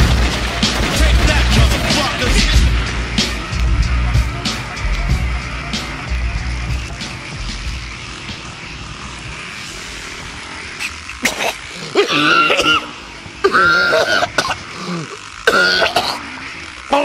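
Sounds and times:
steady background hiss: 0.4s - 17.0s
man coughing and clearing throat: 11.2s - 16.2s.

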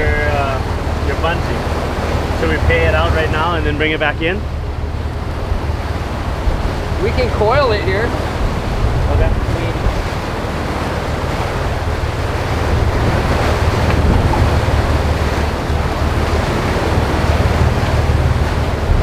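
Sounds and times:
boat engines running low: 0.0s - 19.0s
wake water churning: 0.0s - 19.0s
wind buffeting microphone: 0.0s - 19.0s.

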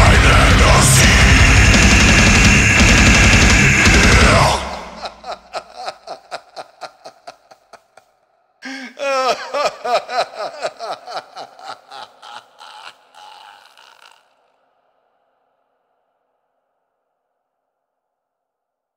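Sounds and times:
man laughing maniacally with echo: 0.0s - 14.5s.

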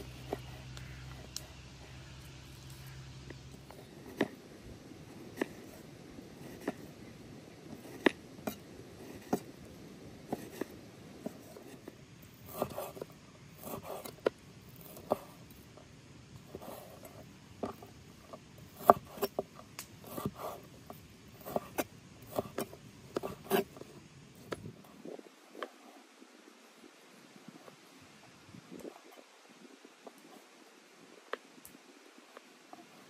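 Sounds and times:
knife scraping slices: 12.4s - 14.2s, 21.4s - 23.8s.

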